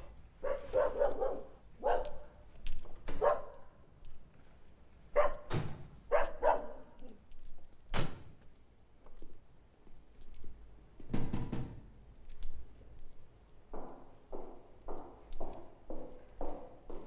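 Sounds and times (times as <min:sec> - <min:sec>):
dog barking: 0:00.4 - 0:02.4, 0:03.1 - 0:03.8, 0:05.1 - 0:05.5, 0:06.1 - 0:07.0.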